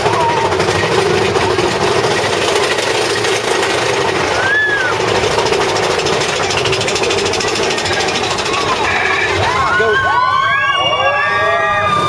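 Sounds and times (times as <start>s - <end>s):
roller coaster rattle and rumble: 0.0s - 12.0s.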